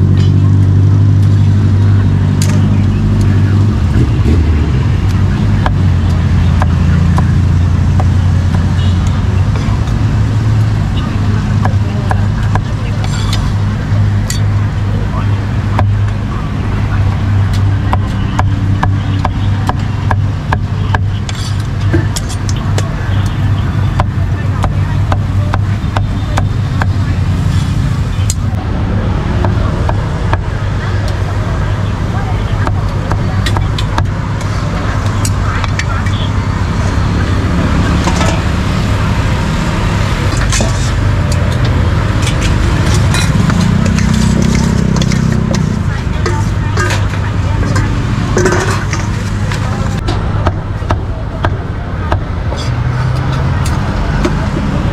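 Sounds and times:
engine hum: 0.0 - 54.9
road traffic rumble: 0.0 - 54.9
ladle clinking on steel bowls: 40.3 - 49.7
cleaver scraping: 40.3 - 50.0.

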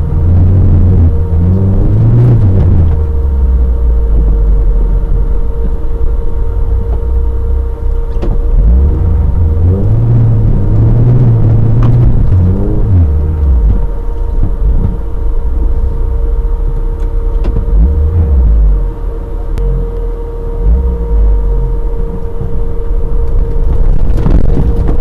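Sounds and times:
off-road vehicle engine revving: 0.0 - 25.0.

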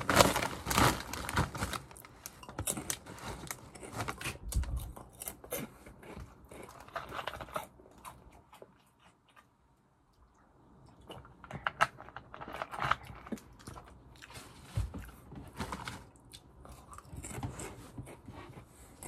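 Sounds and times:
foil snack bag crinkling: 0.0 - 4.7
crisp snack crunching and chewing: 0.0 - 9.5, 11.0 - 15.1, 15.7 - 18.3.

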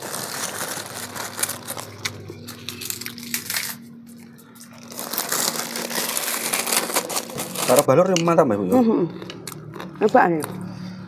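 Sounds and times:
plastic bag crinkling: 0.0 - 7.9
dry crackers crackling: 0.0 - 8.4.

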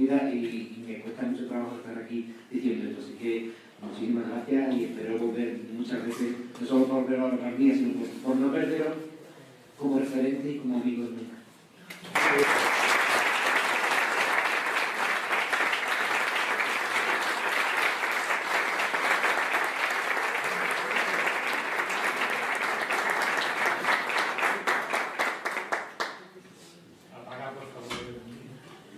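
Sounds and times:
audience applauding: 12.0 - 26.2.

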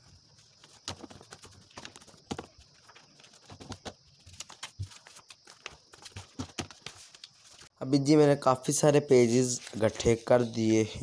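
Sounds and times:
paper rustling: 0.0 - 7.7, 8.7 - 11.0
paper sheets tapping on table: 0.7 - 2.6, 3.4 - 4.0, 4.6 - 7.0.

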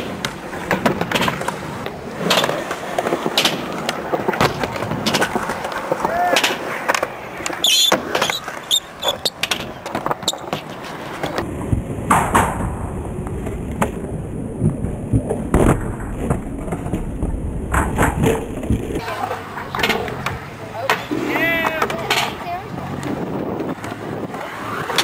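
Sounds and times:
skateboard clacks and knocks: 0.0 - 12.7, 14.6 - 25.0
skateboard wheels rolling on concrete: 0.0 - 25.0.

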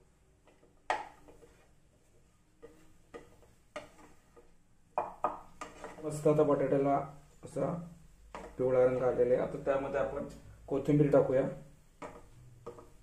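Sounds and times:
metal spoon knocking on pan: 5.0 - 6.0, 8.3 - 8.6, 12.0 - 13.0.

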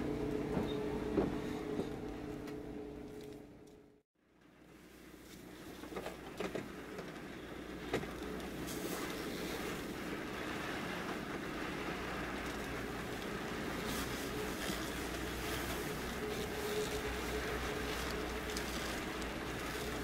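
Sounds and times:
engine and road rumble: 0.0 - 20.0
constant hiss: 4.6 - 20.0
raindrops ticking on windscreen: 5.8 - 20.0.

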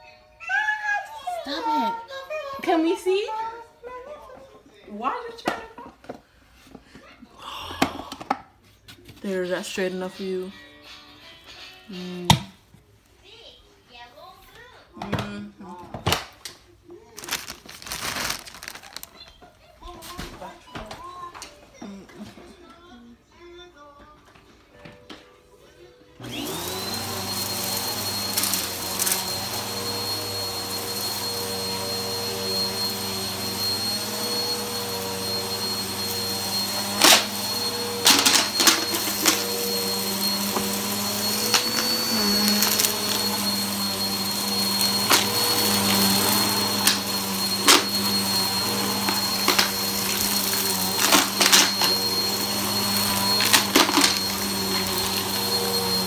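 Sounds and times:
vacuum cleaner motor running: 26.2 - 56.0.

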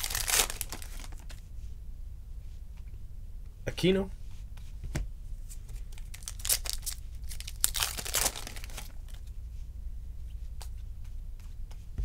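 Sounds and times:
trading cards rustling and crinkling: 0.0 - 1.4, 5.4 - 9.3.

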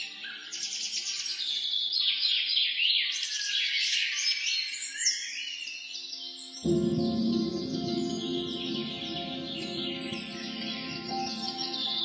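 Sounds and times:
faint ambient music: 6.6 - 12.0.

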